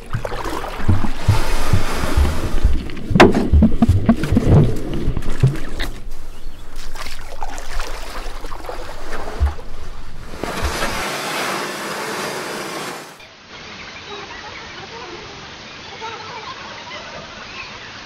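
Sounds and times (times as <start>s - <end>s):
bubble clicks: 0.0s - 6.0s, 8.5s - 10.0s
low thumps: 0.0s - 11.0s
rushing hiss of water: 10.3s - 18.0s.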